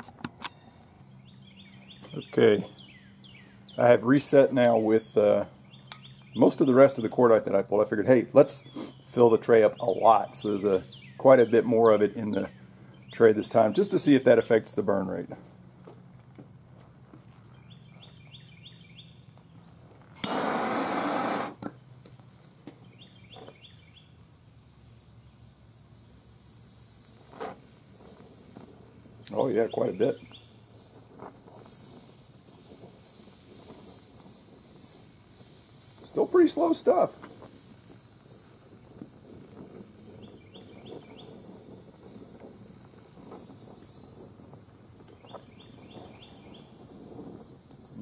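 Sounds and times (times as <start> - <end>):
bird chirping rising notes: 0.5 - 4.0, 17.5 - 21.4
small bird chirping: 0.5 - 4.0, 4.7 - 7.1, 17.3 - 19.8, 22.8 - 24.2, 29.2 - 30.8, 40.2 - 41.4, 43.5 - 44.3, 45.1 - 46.8.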